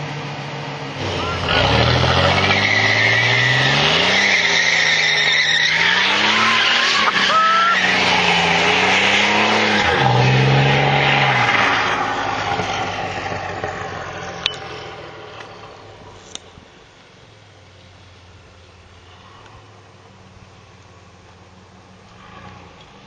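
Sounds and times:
car engine revving: 0.0s - 16.0s
tyres screeching: 1.0s - 8.4s.

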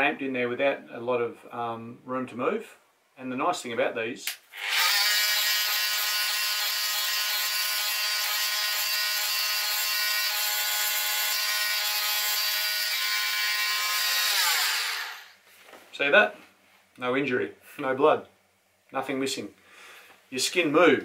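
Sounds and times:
multi-tool buzzing whine: 4.5s - 15.4s.

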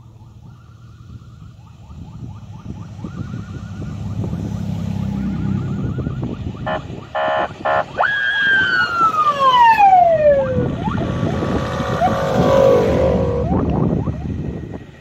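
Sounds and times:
off-road vehicle engines rumbling: 0.0s - 15.0s
siren wail falling in pitch: 0.1s - 14.7s
siren beeps: 5.4s - 14.4s.

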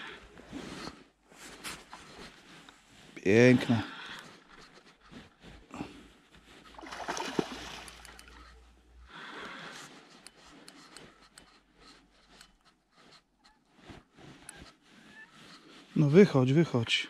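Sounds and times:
fish splashing at water surface: 6.8s - 8.4s.

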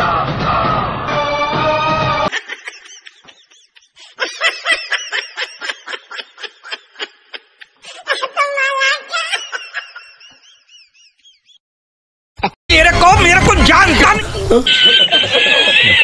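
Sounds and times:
rapid snickering laughter: 2.3s - 8.2s, 14.5s - 16.0s.

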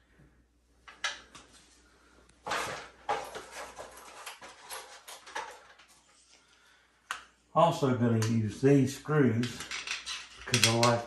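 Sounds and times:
wall plugs and screws rattling: 2.5s - 6.1s, 9.4s - 11.0s.

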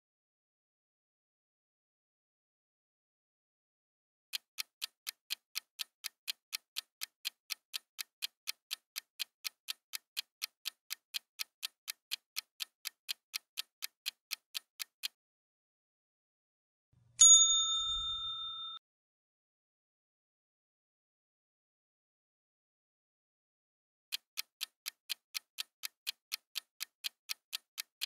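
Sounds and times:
clock ticking: 4.3s - 15.2s, 24.1s - 28.0s.

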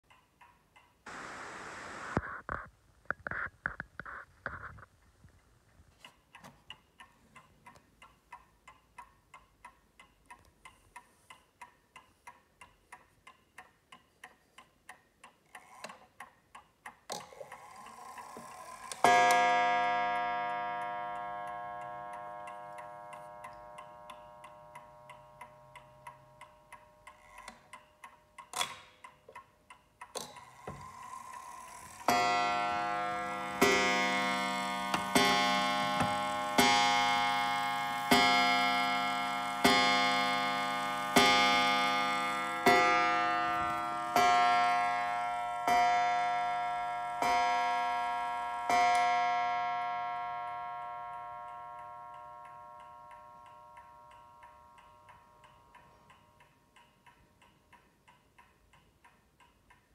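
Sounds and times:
mantel clock ticking: 0.0s - 1.0s, 5.9s - 59.9s
clock gong striking: 32.1s - 52.9s.

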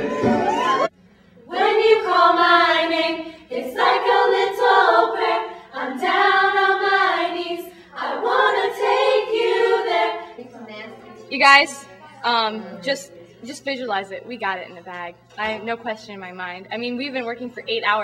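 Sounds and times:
music: 0.0s - 10.3s, 11.9s - 18.0s
women singing together: 1.5s - 10.7s.

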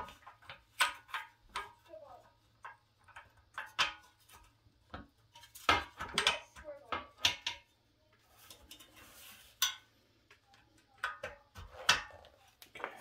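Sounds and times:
metal clinks and knocks: 0.0s - 13.0s
soft rustle of handling: 8.0s - 10.6s.

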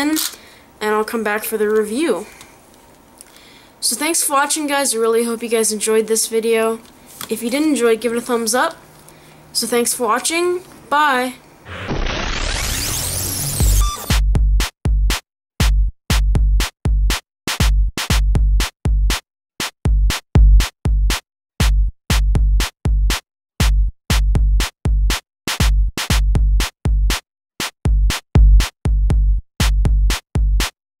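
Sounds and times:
electronic beat with heavy bass: 13.0s - 30.8s.

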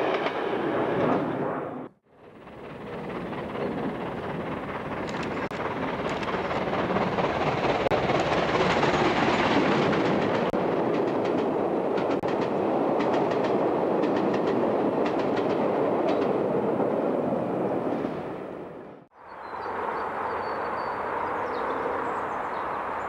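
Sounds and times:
train rumbling past: 0.0s - 23.0s
wheels clicking over rail joints: 2.2s - 16.4s.

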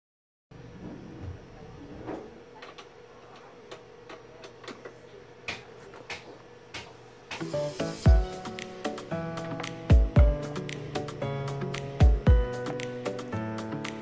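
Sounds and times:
steady low hum: 0.5s - 14.0s
background music: 7.4s - 14.0s.

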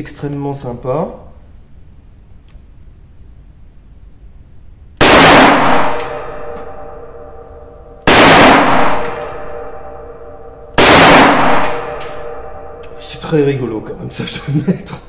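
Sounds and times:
rifle shots ringing: 5.0s - 13.2s.

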